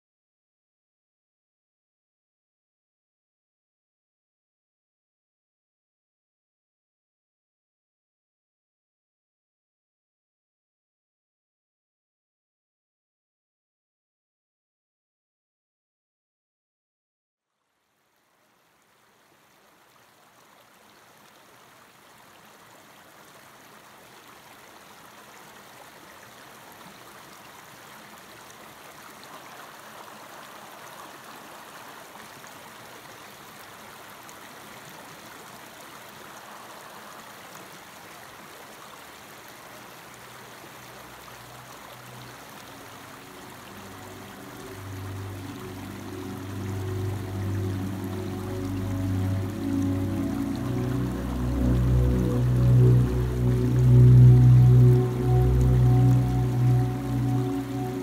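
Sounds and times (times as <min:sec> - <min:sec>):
mountain stream rushing over rocks: 0:18.0 - 0:58.0
low sustained music tones: 0:40.2 - 0:58.0.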